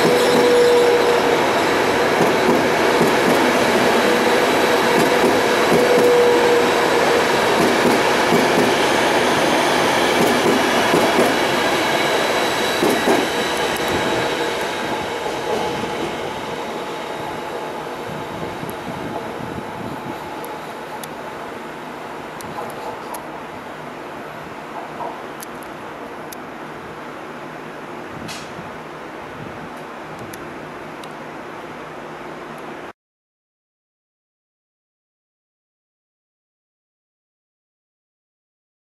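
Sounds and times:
train wheels clattering on track: 0.0s - 17.8s, 24.7s - 25.3s, 28.3s - 28.6s.

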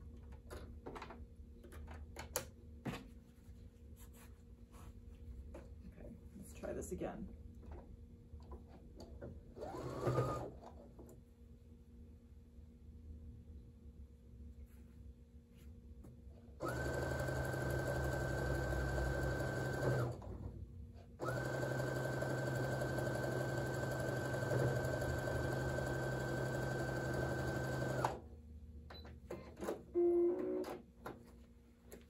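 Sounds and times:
sewing machine stitching: 9.6s - 10.6s, 16.6s - 20.4s, 21.2s - 28.2s.

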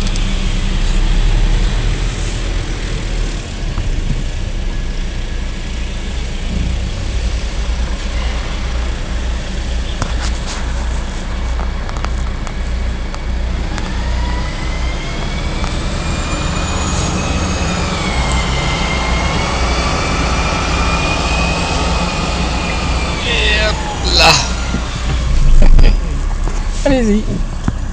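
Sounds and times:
diesel engine running: 0.0s - 27.9s
rising whine: 13.5s - 26.7s.

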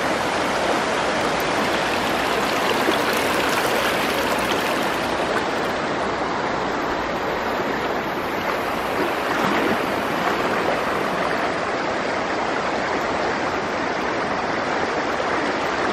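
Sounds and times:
floodwater rushing across road: 0.0s - 6.6s.

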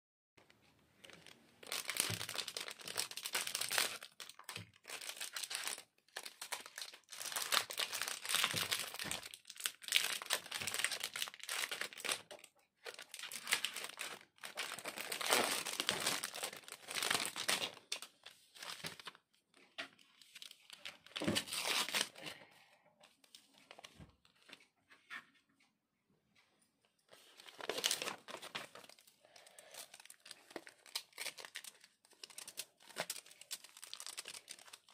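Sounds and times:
chocolate wrappers crinkling: 1.0s - 19.2s, 27.1s - 34.9s.

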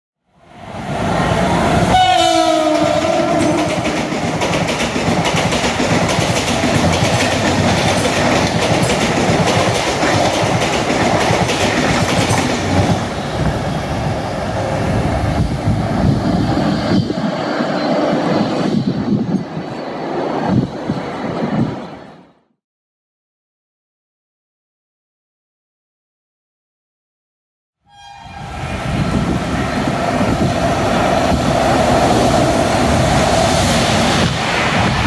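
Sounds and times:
train horn blast: 1.8s - 4.0s, 27.9s - 28.7s
train wheels clattering: 3.4s - 13.0s.

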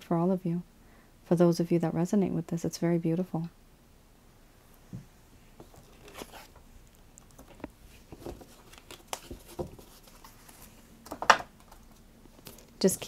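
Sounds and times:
cards and paper rustling: 5.6s - 13.0s.

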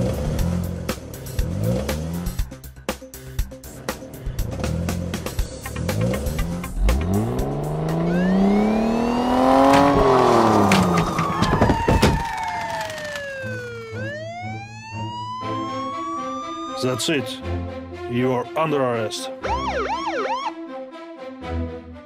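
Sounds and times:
car engine revving: 0.0s - 2.7s, 3.6s - 11.5s
police siren wailing: 7.8s - 17.4s, 19.4s - 20.6s.

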